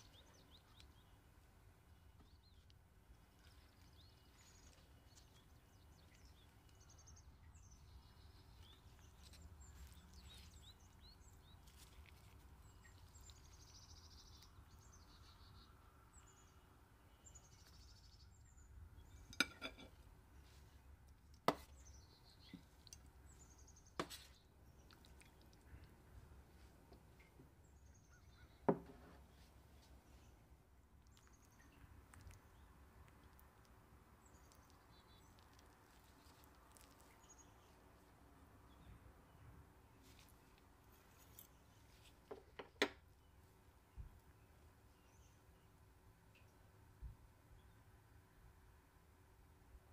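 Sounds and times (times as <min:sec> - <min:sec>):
faint bird chirping: 0:00.0 - 0:48.5.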